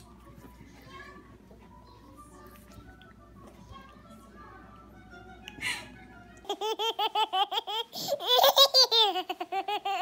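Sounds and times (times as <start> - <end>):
baby giggling: 6.4 - 10.0.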